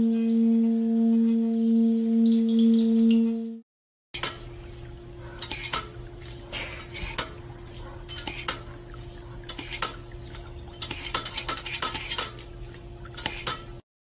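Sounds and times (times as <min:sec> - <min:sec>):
dog pawing at plastic fountain: 0:04.2 - 0:13.8.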